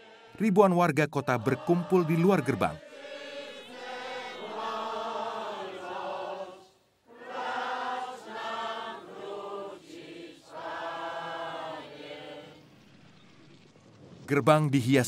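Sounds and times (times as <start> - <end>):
crowd singing a hymn: 0.0 - 0.4, 1.2 - 12.8.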